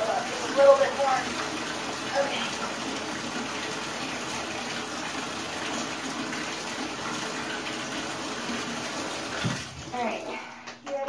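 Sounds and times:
water running into bathtub: 0:00.0 - 0:11.0.

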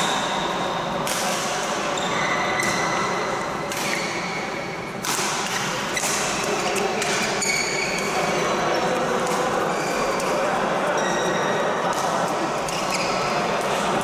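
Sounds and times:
rackets striking shuttlecock: 0:00.0 - 0:08.2
busy sports hall noise: 0:00.0 - 0:14.0
shoes squeaking on court: 0:05.6 - 0:09.0, 0:12.7 - 0:13.5.

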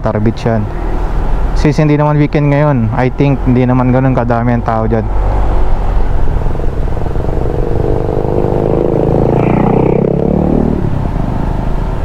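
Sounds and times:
road rumble: 0:00.0 - 0:12.0
wind: 0:00.0 - 0:12.0
scooter engine drone: 0:05.0 - 0:12.0.

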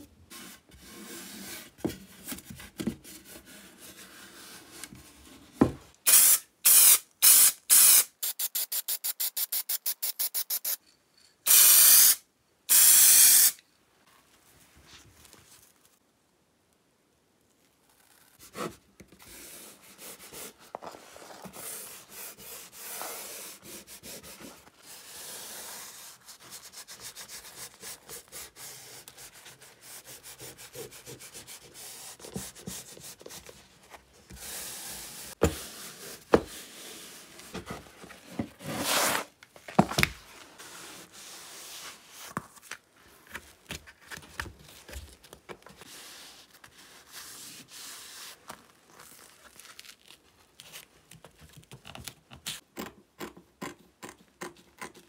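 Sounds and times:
hand rubbing and scraping a surface: 0:18.0 - 0:39.4, 0:40.2 - 0:45.0.

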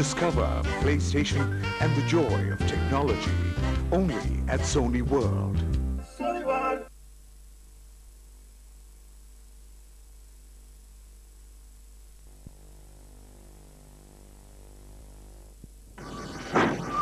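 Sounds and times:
faint tape hiss: 0:00.0 - 0:17.0
low mains hum: 0:03.8 - 0:17.0.

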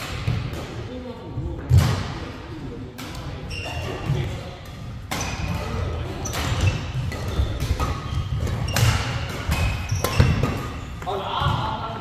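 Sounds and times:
shoes squeaking: 0:03.4 - 0:04.2, 0:05.1 - 0:10.9
racket striking shuttlecock: 0:05.1 - 0:10.8.

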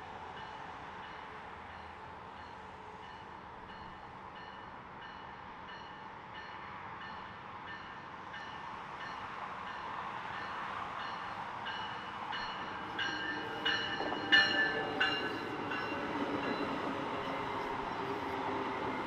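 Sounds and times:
train running noise: 0:00.0 - 0:19.0
bell ringing: 0:12.4 - 0:16.8.

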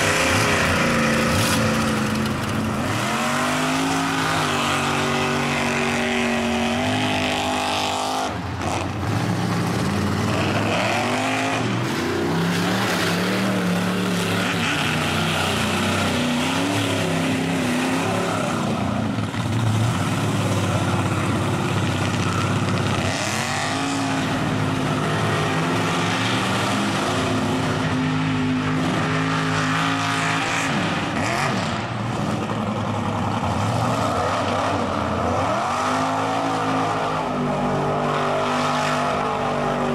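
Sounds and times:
truck engines revving hard: 0:00.0 - 0:39.9
spinning tires throwing mud: 0:00.1 - 0:05.0.

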